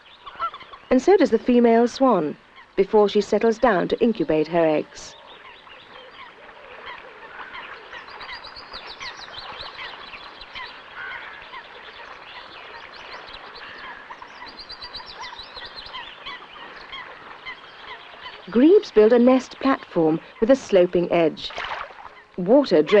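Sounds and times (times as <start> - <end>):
waterbirds calling: 0.0 - 23.0
goose-like calls: 0.2 - 0.8, 4.9 - 8.4.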